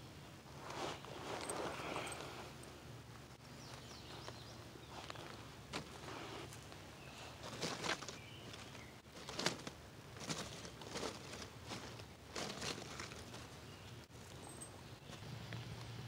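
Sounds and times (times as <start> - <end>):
kindling rustling and crackling: 4.9 - 13.7.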